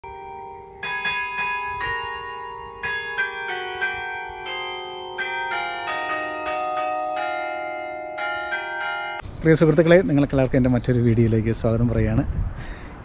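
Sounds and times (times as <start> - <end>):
church bells ringing: 0.0 - 9.3.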